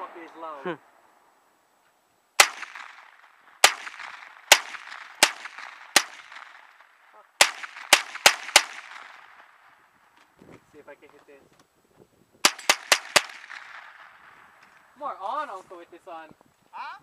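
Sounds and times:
gunshots with echo: 0:02.4 - 0:09.8, 0:12.4 - 0:14.4.

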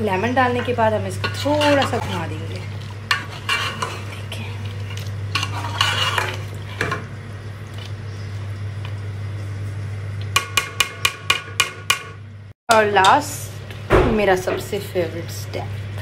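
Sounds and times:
curry sizzling in oil: 0:00.0 - 0:11.7
steady low hum: 0:00.0 - 0:16.0
spoon scraping metal pot: 0:00.5 - 0:07.0.

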